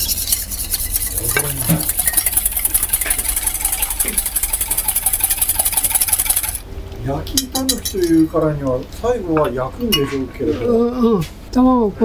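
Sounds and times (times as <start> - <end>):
whisk beating in metal bowl: 0.0 - 6.6.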